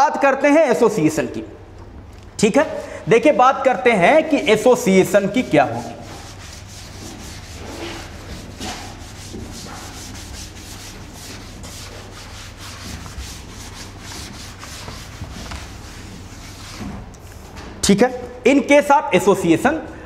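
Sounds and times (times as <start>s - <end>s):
duster scrubbing a blackboard: 4.2s - 17.3s.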